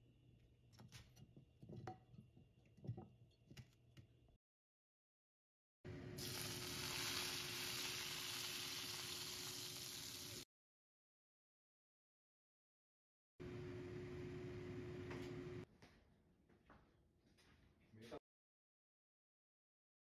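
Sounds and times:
hot oil sizzling: 6.2s - 10.5s.

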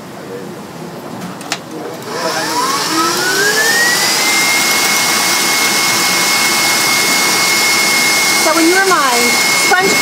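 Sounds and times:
electric mixer motor whine: 2.0s - 10.0s.

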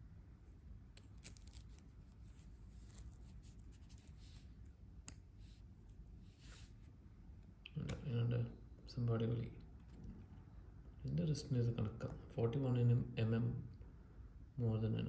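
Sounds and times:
metal watch band rustling: 0.5s - 6.8s.

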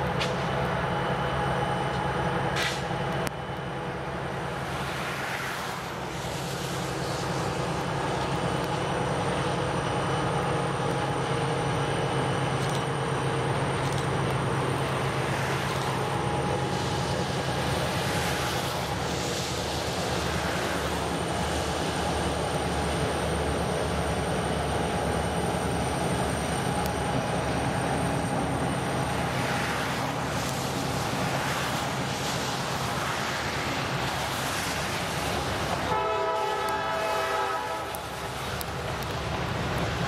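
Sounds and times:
diesel locomotive drone: 0.0s - 40.0s
train wheels rolling on rails: 0.0s - 40.0s
locomotive horn: 35.8s - 38.2s.

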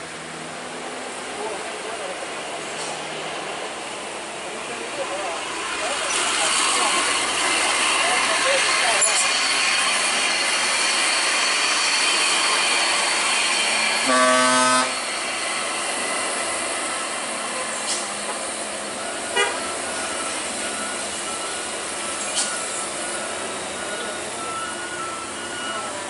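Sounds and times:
trucks and cars driving uphill: 0.0s - 26.0s
vehicle horn blast: 14.0s - 15.0s, 19.4s - 19.6s.

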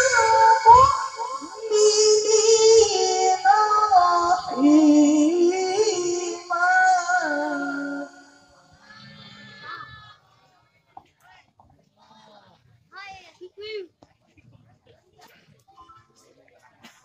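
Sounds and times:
man reciting melodically: 0.0s - 8.4s.

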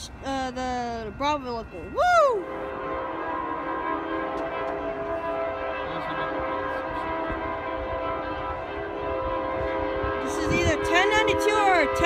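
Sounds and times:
train air horn chord: 2.4s - 12.0s.

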